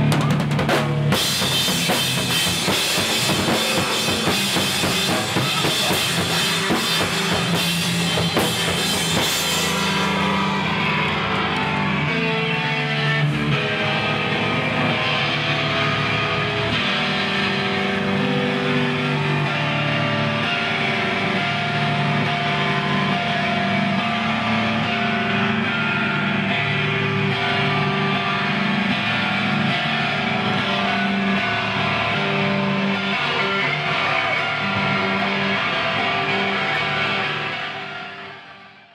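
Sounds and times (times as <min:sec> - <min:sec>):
drum kit pounding: 0:00.0 - 0:12.8
loud electric guitar: 0:00.0 - 0:38.9.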